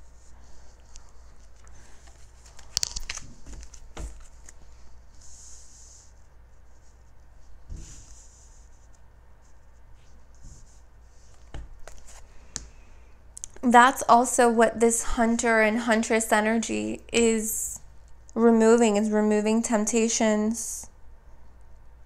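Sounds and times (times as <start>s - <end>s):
cards rustling and sliding: 0.8s - 5.3s, 10.4s - 12.8s
light taps of cards: 11.4s - 12.7s.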